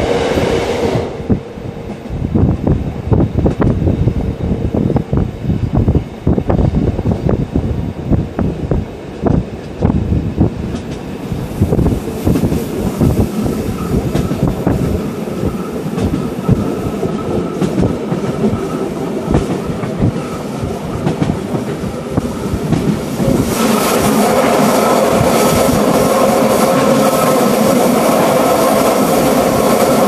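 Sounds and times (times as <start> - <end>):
train rumbling: 0.0 - 30.0
wheels clicking over rail joints: 10.7 - 23.4.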